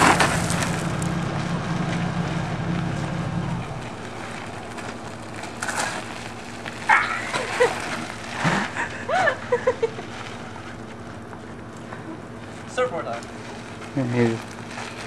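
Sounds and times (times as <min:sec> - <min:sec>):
bicycle tyres on gravel: 0:00.0 - 0:15.0
person crying out: 0:06.9 - 0:07.6.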